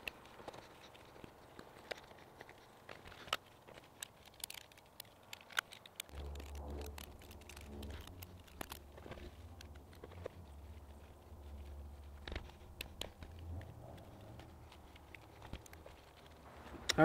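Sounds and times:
low steady hum: 6.1s - 17.0s.

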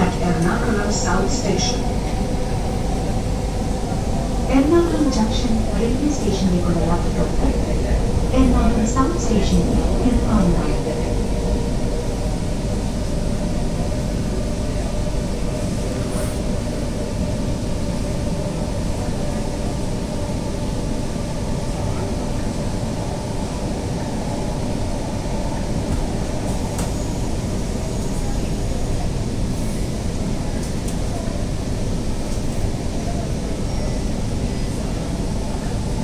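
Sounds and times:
steady hum: 0.0s - 17.2s
train wheels rumbling on rail: 0.0s - 36.0s.

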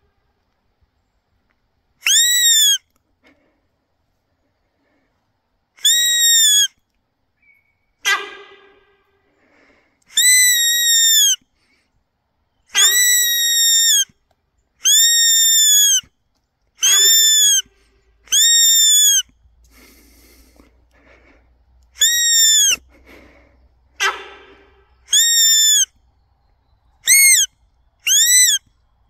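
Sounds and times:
hand-blown deer call: 2.0s - 2.9s, 5.8s - 6.8s, 10.1s - 11.5s, 12.7s - 14.1s, 14.8s - 16.1s, 16.8s - 20.6s, 22.0s - 23.3s, 24.0s - 25.9s, 27.0s - 28.7s.

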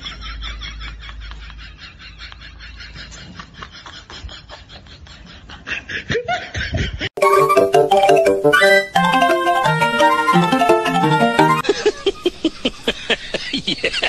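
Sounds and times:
instrumental music: 7.2s - 11.6s
faint laughter-like chatter: 11.6s - 14.0s.

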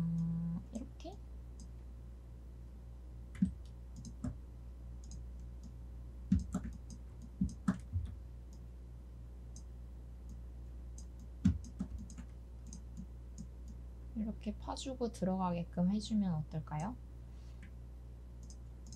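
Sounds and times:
low electrical hum: 0.0s - 18.9s.

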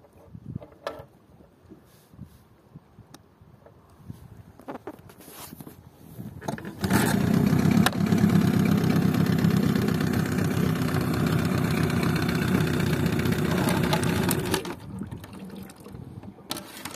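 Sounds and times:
outboard engine running: 6.5s - 15.4s.

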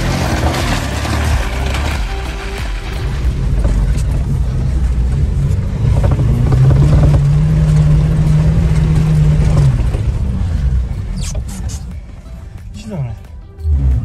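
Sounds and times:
car engine working hard: 0.0s - 14.0s.

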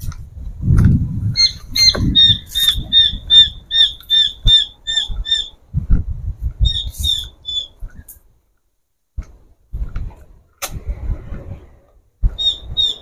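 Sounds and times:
bird squawking: 1.4s - 5.6s, 6.6s - 7.8s, 12.4s - 13.0s.

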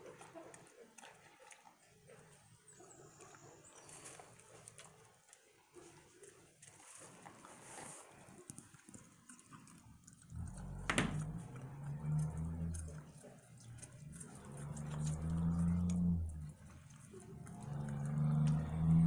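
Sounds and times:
turkeys pecking watermelon: 0.0s - 19.0s
low steady hum: 10.3s - 19.0s.

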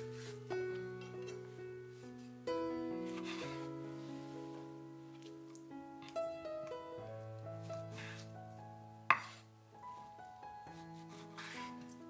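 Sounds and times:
slow instrumental music: 0.0s - 12.0s.

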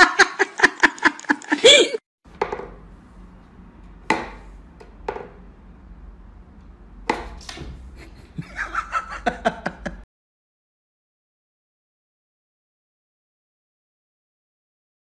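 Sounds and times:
burst of laughter: 0.0s - 2.0s.

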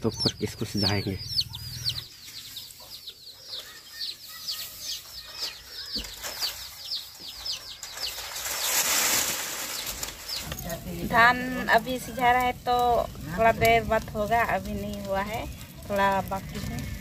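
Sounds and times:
bird chirping: 0.0s - 8.9s, 9.6s - 12.4s.

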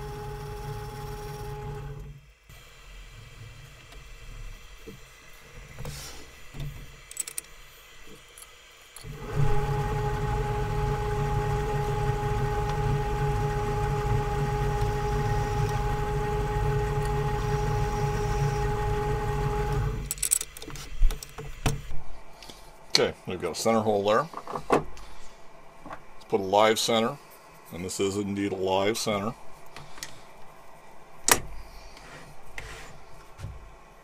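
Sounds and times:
metal lathe humming and whining: 0.0s - 2.1s, 9.0s - 20.1s.

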